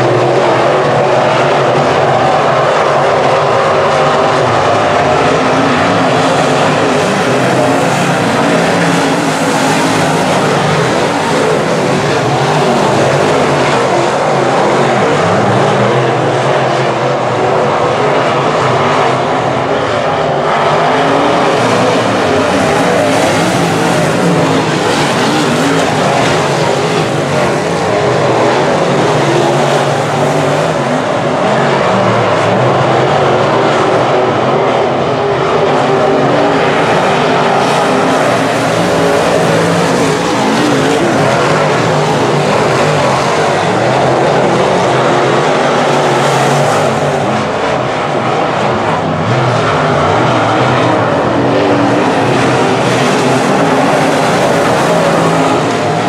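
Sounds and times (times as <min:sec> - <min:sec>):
race car engines roaring: 0:00.0 - 0:56.0.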